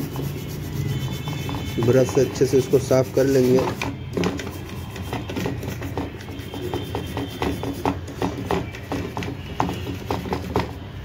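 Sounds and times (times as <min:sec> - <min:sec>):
plastic brush scrubbing circuit board: 0:00.0 - 0:11.0.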